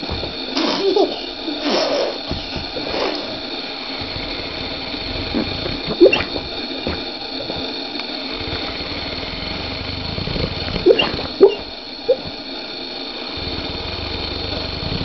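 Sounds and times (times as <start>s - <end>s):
dog snoring: 1.6s - 12.4s.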